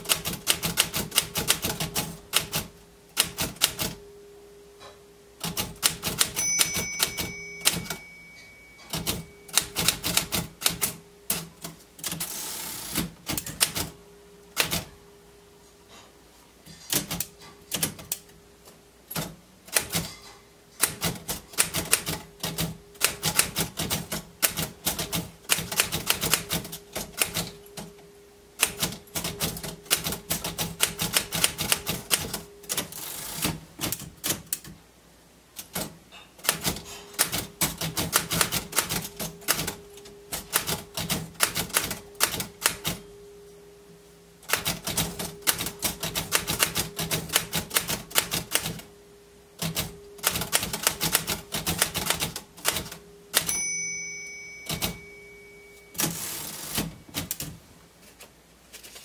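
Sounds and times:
typewriter key strikes: 0:05.4 - 0:12.3, 0:16.8 - 0:18.2, 0:19.1 - 0:27.9, 0:35.6 - 0:43.0, 0:44.5 - 0:48.8, 0:49.6 - 0:53.6, 0:54.6 - 0:55.2
typewriter carriage return: 0:05.4 - 0:14.0, 0:16.7 - 0:18.2, 0:19.1 - 0:27.9, 0:28.6 - 0:34.7, 0:35.6 - 0:43.0, 0:44.4 - 0:48.8, 0:49.6 - 0:59.0.

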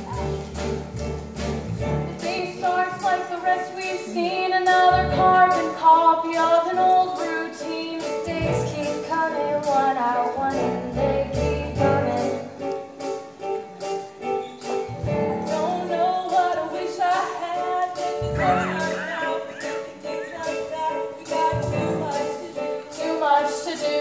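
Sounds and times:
small live band: 0:00.0 - 0:24.0
women singing: 0:02.2 - 0:12.6, 0:15.4 - 0:24.0.

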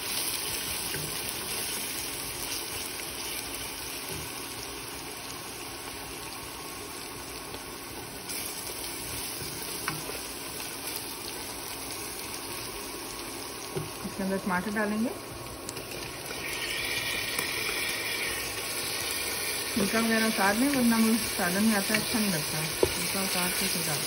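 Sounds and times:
onions sizzling in hot oil: 0:00.0 - 0:24.0
wooden spoon stirring in pot: 0:15.7 - 0:24.0.

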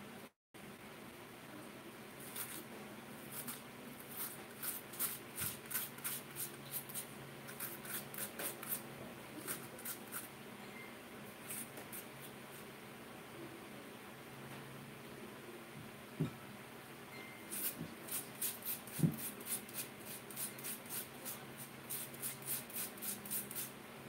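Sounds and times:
faint hum: 0:00.0 - 0:22.4
metal spoon scraping potato: 0:02.2 - 0:02.6, 0:03.3 - 0:08.8, 0:09.4 - 0:10.3, 0:17.5 - 0:23.7.

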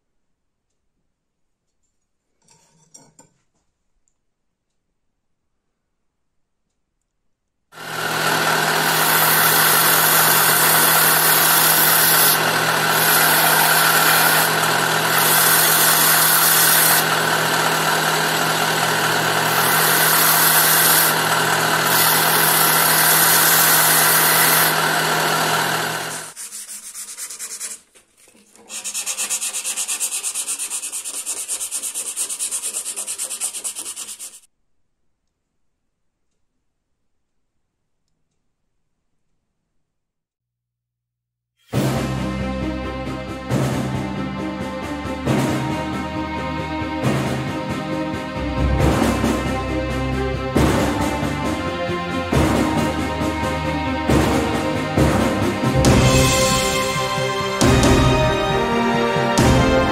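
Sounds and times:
motor hum: 0:07.8 - 0:26.4
belt grinder grinding steel: 0:07.8 - 0:27.7, 0:28.5 - 0:34.5, 0:55.8 - 0:59.9.

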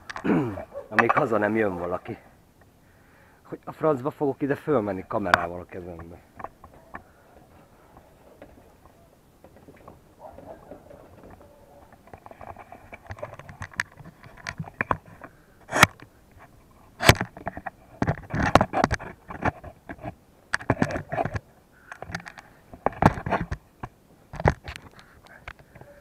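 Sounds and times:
knocks and scrapes on ladder: 0:05.4 - 0:16.0, 0:17.0 - 0:21.4
camera handling bumps: 0:08.0 - 0:16.1, 0:17.0 - 0:25.8.

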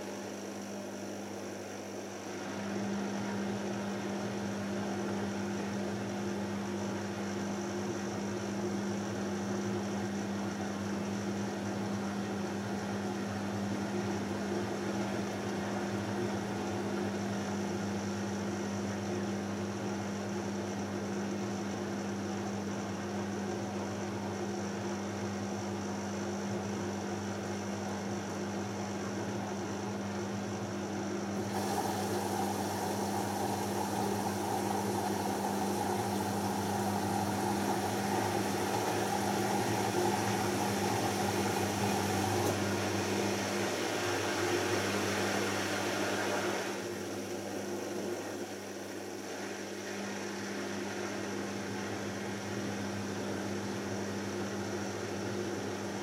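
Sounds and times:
washing machine drum humming: 0:27.5 - 0:56.0.

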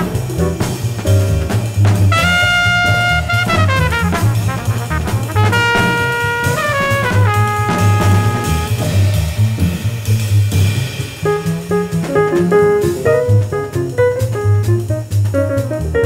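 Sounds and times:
double bass line: 0:00.0 - 0:16.0
horn sliding long note: 0:02.1 - 0:08.9
jazz quintet playing: 0:02.1 - 0:09.1, 0:11.3 - 0:16.0.

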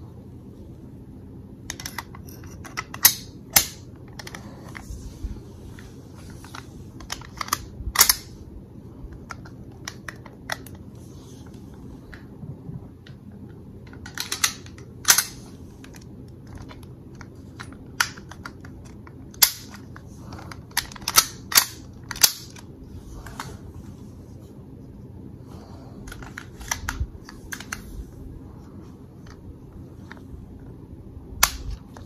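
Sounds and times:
metal clicks of pistol handling: 0:20.8 - 0:22.6.

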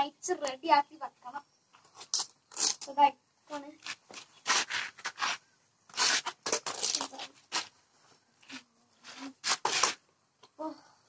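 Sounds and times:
velcro straps ripping: 0:02.0 - 0:02.9, 0:03.8 - 0:07.7, 0:09.4 - 0:10.0.

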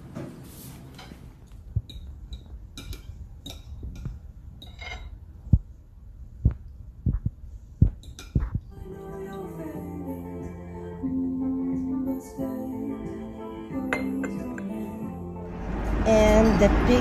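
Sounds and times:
fork clinking on a plate: 0:01.9 - 0:05.1.

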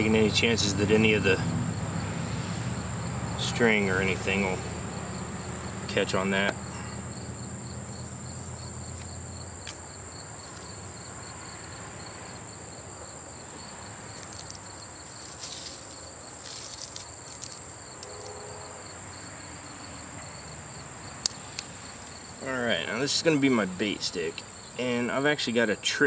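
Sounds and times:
insects chirring: 0:00.0 - 0:26.0
faint rustles: 0:14.1 - 0:18.4.

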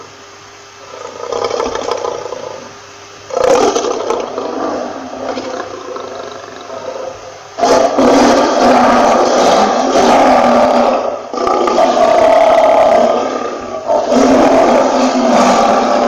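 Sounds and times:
lion roaring: 0:00.8 - 0:16.0.

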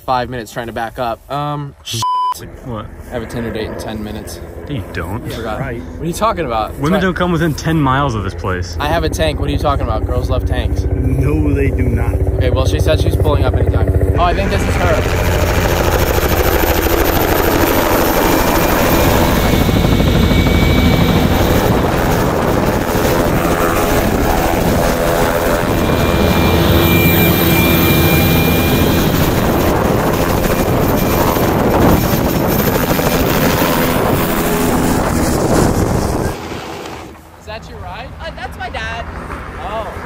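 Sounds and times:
large vehicle engine running: 0:08.4 - 0:33.1.

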